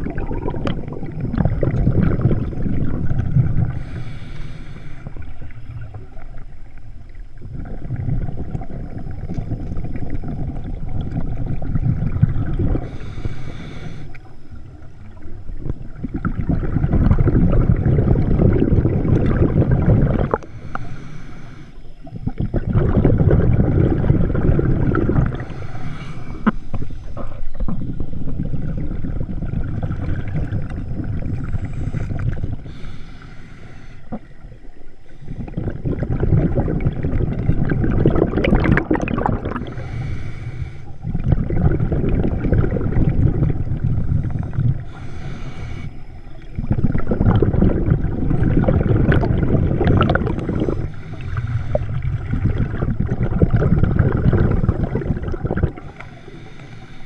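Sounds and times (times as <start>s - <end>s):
exhaled bubbles rumbling: 0.0s - 57.0s
regulator inhale hiss: 3.6s - 5.7s, 12.7s - 14.8s, 20.3s - 22.2s, 25.2s - 27.6s, 31.2s - 35.6s, 39.6s - 41.2s, 44.1s - 46.6s, 50.3s - 52.3s, 55.8s - 57.0s.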